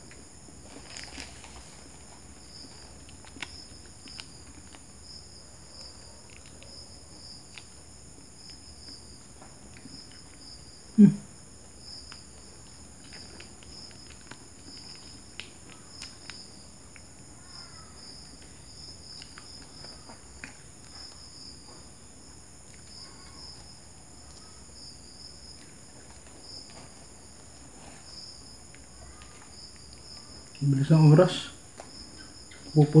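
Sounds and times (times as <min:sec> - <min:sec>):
insects chirping: 0:00.0 - 0:33.0
paper wrappers being handled: 0:00.6 - 0:04.9
plastic sachet crinkling: 0:00.6 - 0:04.9.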